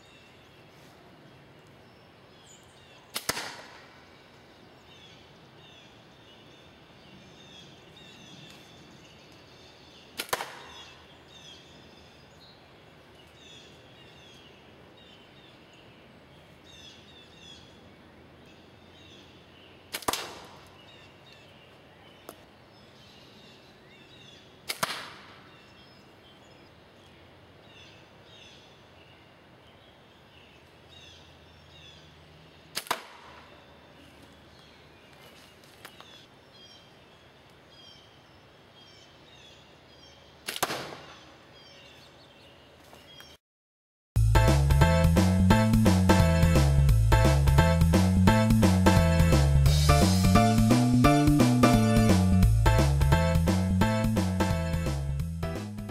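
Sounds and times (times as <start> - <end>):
birds twittering faintly: 0.0 - 43.4
slingshot shots cracking: 3.1 - 4.0, 10.2 - 10.8, 19.9 - 20.7, 24.6 - 25.5, 32.7 - 33.5, 40.4 - 41.2.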